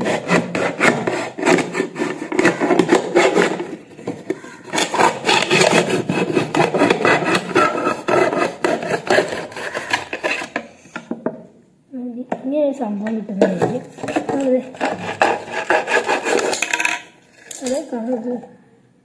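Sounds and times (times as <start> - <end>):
knife sawing plastic bottle: 0.0 - 10.6, 14.0 - 16.7.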